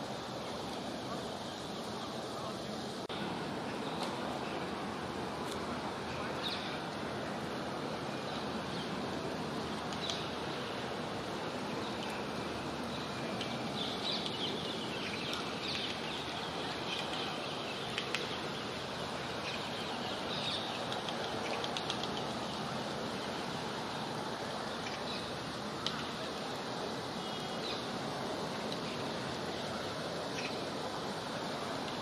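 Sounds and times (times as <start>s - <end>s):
city park background noise: 0.0s - 32.0s
small birds chirping: 9.7s - 10.7s, 11.8s - 23.2s.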